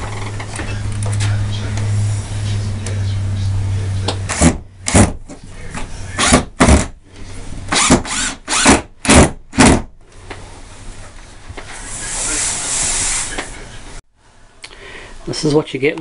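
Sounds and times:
cordless drill bursts: 7.8 - 9.2.

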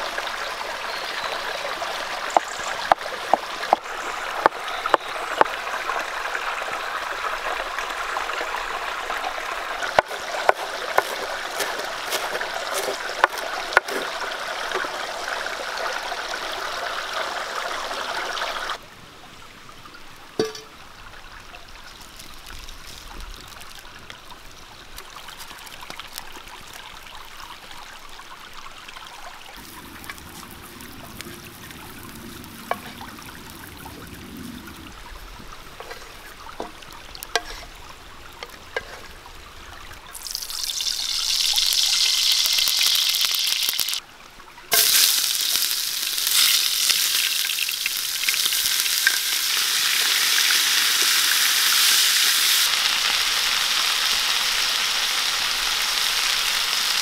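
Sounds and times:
stream rushing: 0.0 - 18.8, 29.6 - 42.6.

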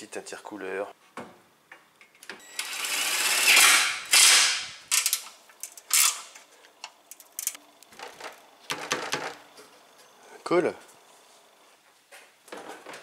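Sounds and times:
power tool running: 2.4 - 4.5
tools and parts clattering: 3.6 - 6.5, 7.1 - 9.8.

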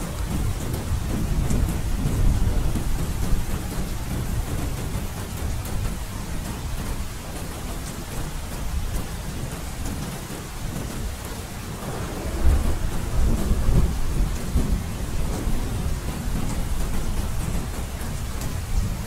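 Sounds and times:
steady rain falling: 0.0 - 19.0
thunder rumbling: 10.7 - 19.0.

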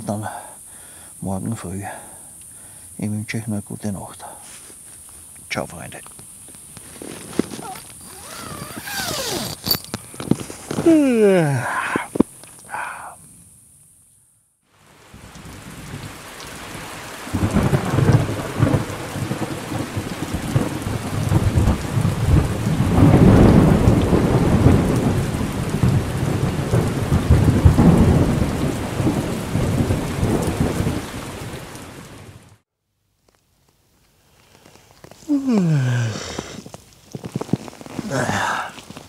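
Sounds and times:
heavy rain: 6.8 - 13.2, 14.7 - 32.6, 34.9 - 39.0
rolling thunder: 17.3 - 31.7.

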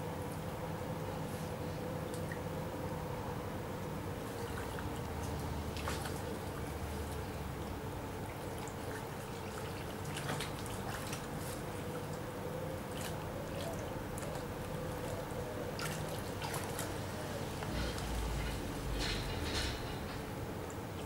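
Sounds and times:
river water trickling over stones: 3.7 - 21.0
brief water splashes: 5.7 - 6.2.

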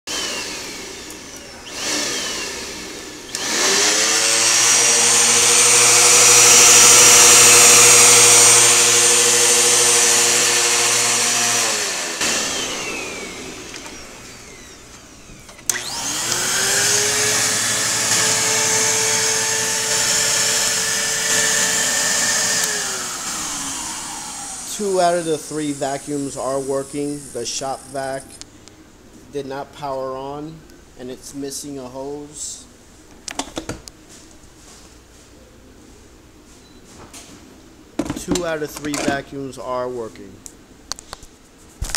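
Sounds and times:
vacuum cleaner motor whine: 0.1 - 27.9.

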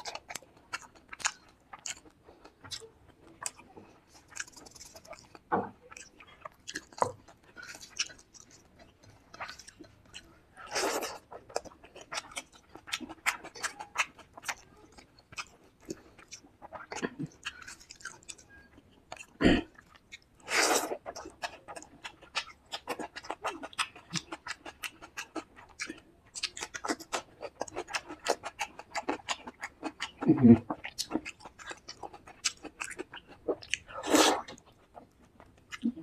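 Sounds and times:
close chewing with wet smacks: 0.0 - 36.0.

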